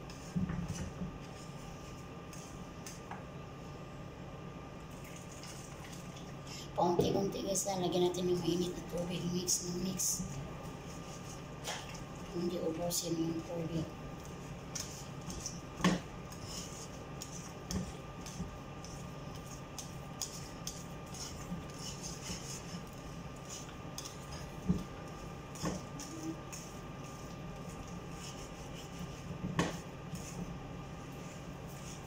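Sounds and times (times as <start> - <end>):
whisk knocking pan: 13.2 - 32.0
whisk scraping against pan: 14.2 - 32.0.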